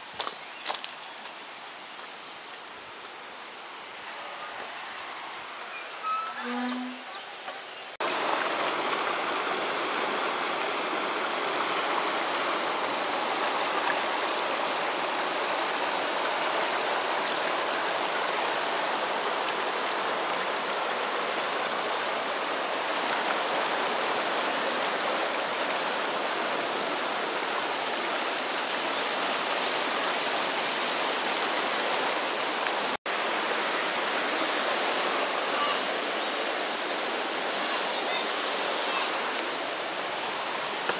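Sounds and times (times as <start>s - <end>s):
river rushing over stones: 8.0s - 40.9s.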